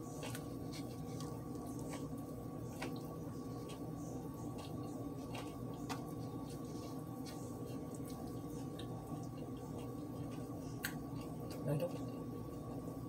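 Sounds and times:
steady background hum: 0.0 - 13.0
person chewing: 0.1 - 12.8.

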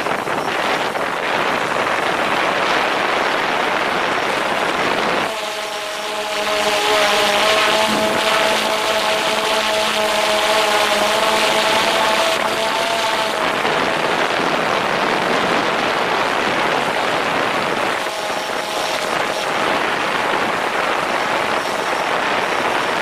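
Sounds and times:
drone propellers whining: 3.8 - 22.1.

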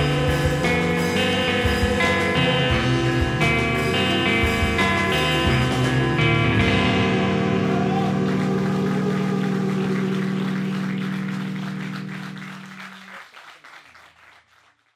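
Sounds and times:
rock band chord ringing out: 0.0 - 13.1
scattered applause: 6.6 - 14.9.

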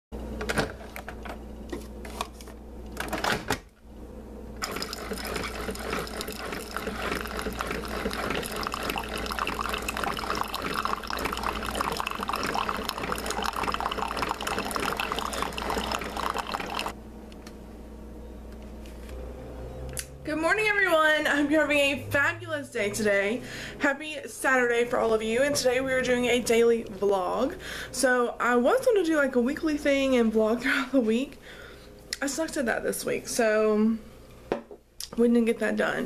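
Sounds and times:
coffee maker pump running: 4.6 - 17.0
coffee pouring into a mug: 4.6 - 17.0.

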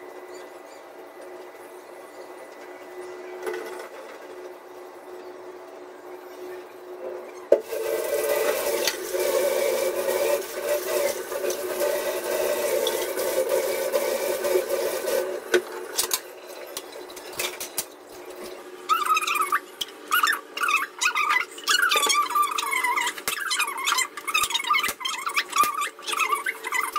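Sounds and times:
tap water running into metal pan: 7.6 - 15.7.

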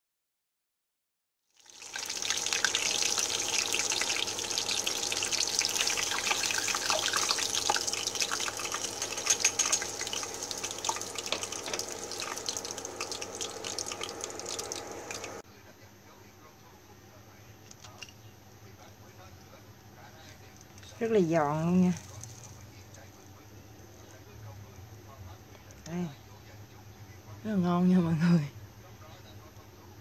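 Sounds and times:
hot oil sizzling and crackling: 1.5 - 15.4, 21.8 - 22.8.

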